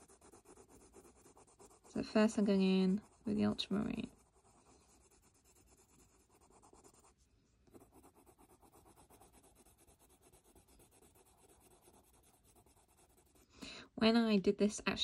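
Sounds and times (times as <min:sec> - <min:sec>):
pencil scratching on paper: 0:00.0 - 0:13.5.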